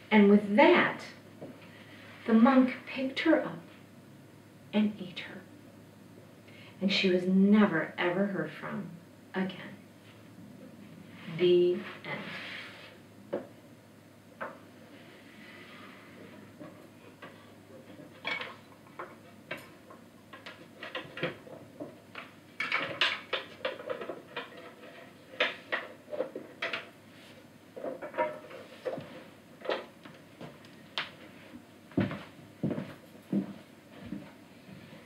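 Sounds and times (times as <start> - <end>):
footsteps walking away: 28.9 - 35.0.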